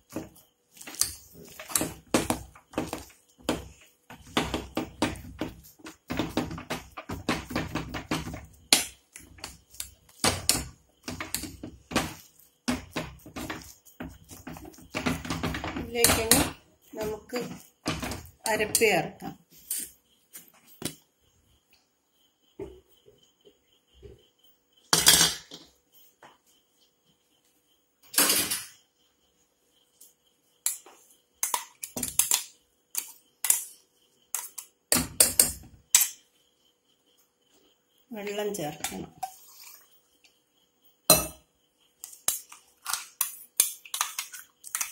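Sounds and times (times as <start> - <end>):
spatula scraping metal pot: 0.1 - 20.0.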